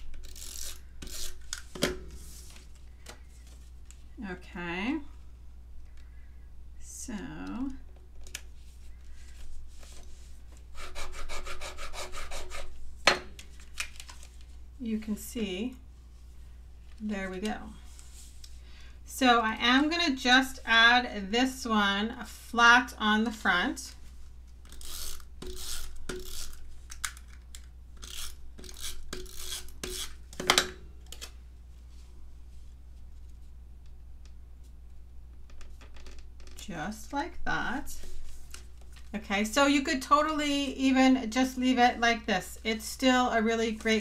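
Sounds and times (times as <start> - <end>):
tape runner strokes on paper: 24.7 - 26.7.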